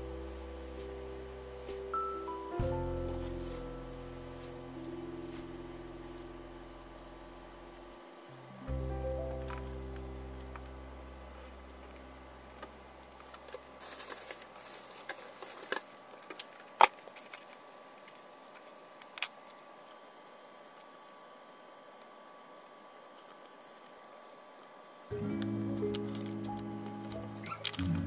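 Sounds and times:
background music: 0.0s - 6.6s, 8.3s - 11.3s, 25.1s - 28.0s
paper rustling: 13.8s - 16.4s.

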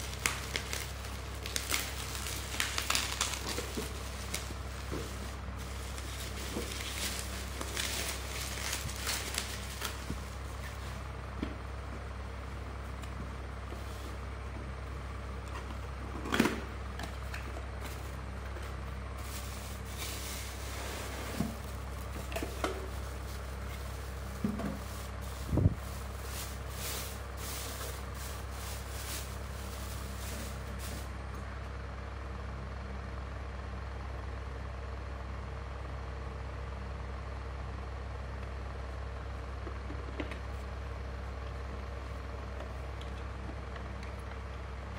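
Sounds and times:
bubble wrap and plastic crinkling: 0.0s - 11.7s, 17.1s - 31.1s
steady low hum: 0.0s - 35.2s.

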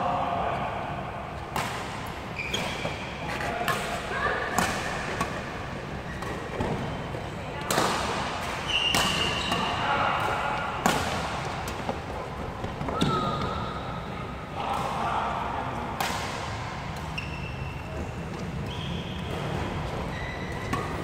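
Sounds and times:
rackets hitting shuttlecock: 1.5s - 5.6s, 7.6s - 11.9s
court shoes squeaking: 2.0s - 9.8s, 16.9s - 21.0s.

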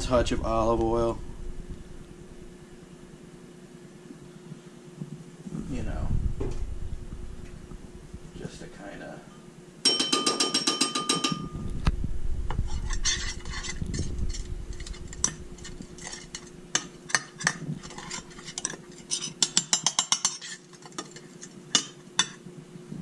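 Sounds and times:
metal spoon scraping glass dish: 12.7s - 22.4s.

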